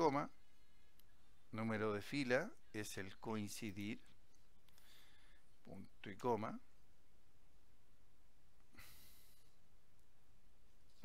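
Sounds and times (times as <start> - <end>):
faint room hiss: 0.0 - 11.0
person breathing in: 4.8 - 5.5.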